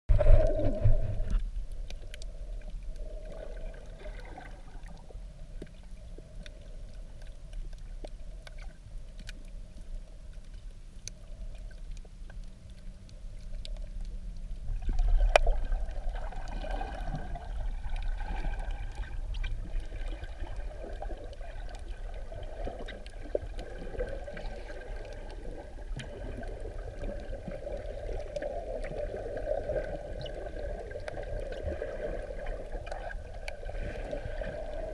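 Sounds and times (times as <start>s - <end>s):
sharp clicks underwater: 0.1s - 22.0s
muffled underwater rumble: 0.1s - 34.9s.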